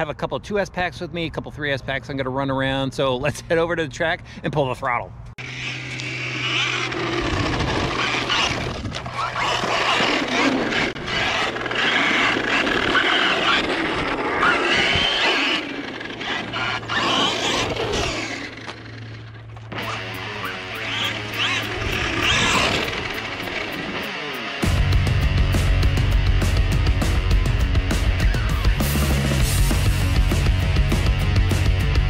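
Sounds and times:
tyres on loose dirt: 5.4s - 24.9s
electric motor whining: 5.4s - 25.5s.

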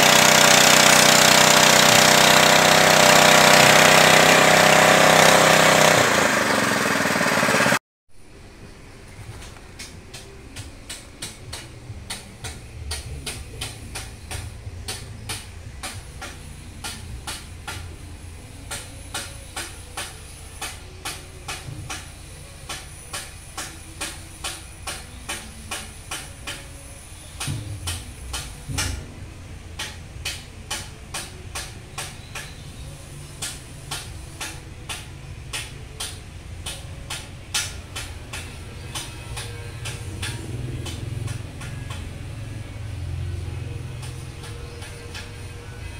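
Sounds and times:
low mechanical hum: 0.0s - 45.9s.

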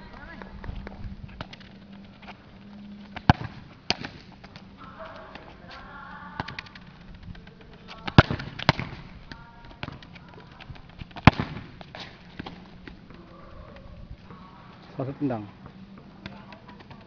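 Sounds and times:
ball kicked thudding on concrete: 3.1s - 5.8s, 6.4s - 14.9s, 15.5s - 17.0s.

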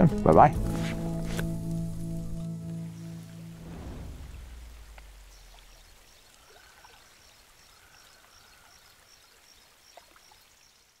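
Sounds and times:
outro music: 0.0s - 5.8s
creek running: 0.0s - 11.0s.

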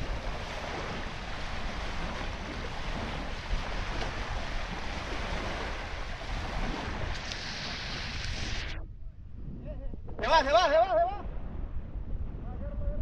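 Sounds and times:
lake waves lapping on shore: 0.0s - 8.7s
wind on microphone: 0.0s - 13.0s.

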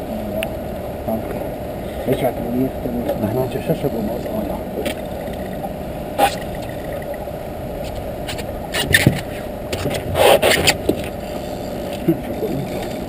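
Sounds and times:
steady low rumble: 0.0s - 13.0s
knocks and scrapes in a boat: 7.8s - 13.0s.

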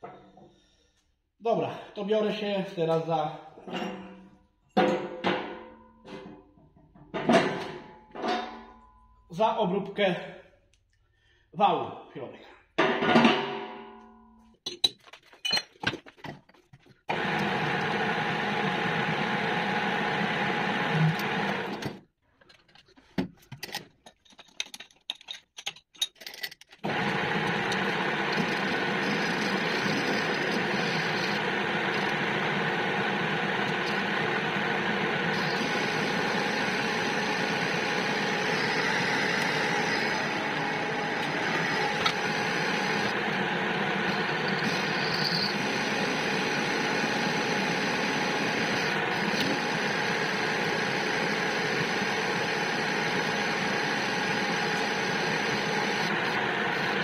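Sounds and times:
metal lathe humming: 17.1s - 21.8s, 26.8s - 57.0s.

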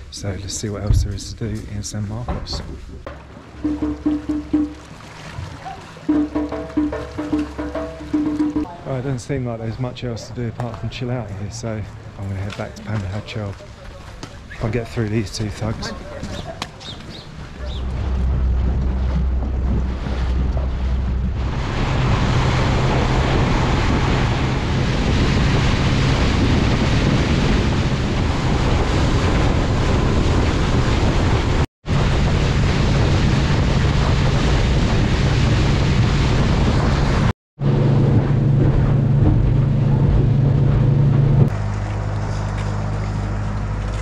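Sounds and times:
rushing water: 0.0s - 44.0s
outboard motor humming: 2.8s - 9.4s, 11.6s - 31.4s, 32.0s - 44.0s
wind on microphone: 15.7s - 43.8s.

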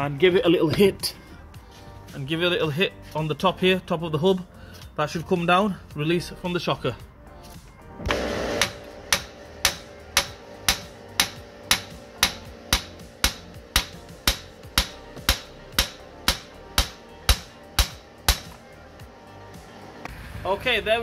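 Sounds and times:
hammer striking metal: 8.1s - 18.6s.

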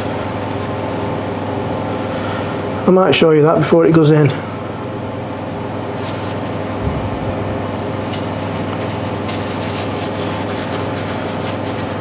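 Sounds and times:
appliance fan motor humming: 0.0s - 12.0s.

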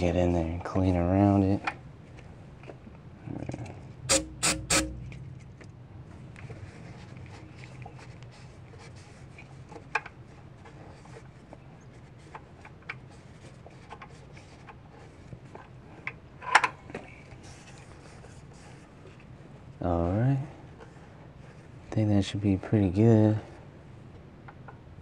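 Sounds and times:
rag rubbing inside metal bore: 4.1s - 5.2s.

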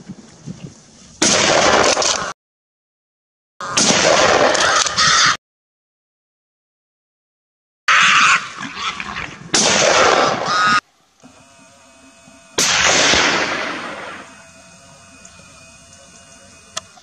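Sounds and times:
loud bursts of noise: 9.5s - 17.0s
gunshot echoing: 9.6s - 10.4s, 12.6s - 14.2s.

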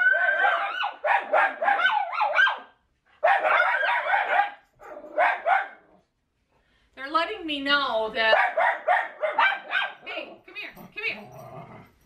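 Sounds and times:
dogs barking high-pitched: 0.0s - 6.0s, 8.3s - 10.3s.

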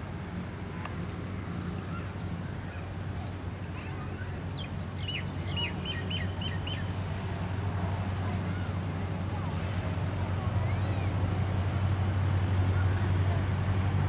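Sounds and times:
birds calling: 4.5s - 6.9s
diesel locomotive engine droning: 6.2s - 14.0s.

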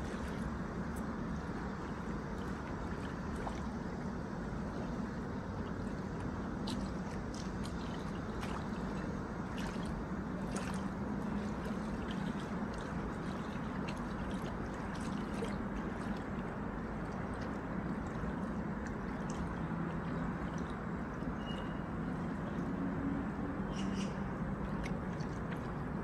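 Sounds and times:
ripples lapping at riverbank: 0.0s - 26.0s
soft water splashes: 0.0s - 26.0s
steady low rumble: 0.0s - 26.0s.

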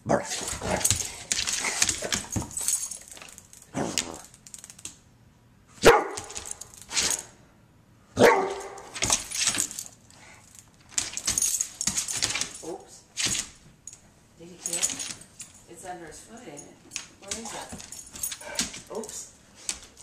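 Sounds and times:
large dog barking: 5.8s - 6.4s, 8.2s - 8.9s.

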